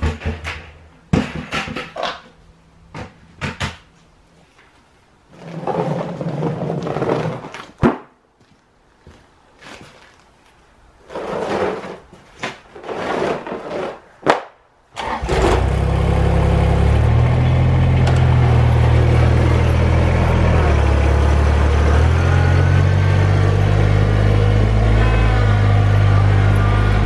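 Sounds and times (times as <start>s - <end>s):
rubber mat dragged on concrete: 5.3s - 7.8s, 11.0s - 14.2s
tractor diesel engine running: 15.0s - 27.0s.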